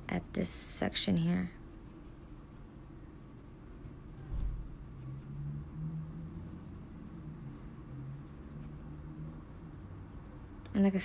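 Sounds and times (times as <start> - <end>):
pencil scratching on paper: 0.0 - 11.0
low thump: 4.2 - 4.8.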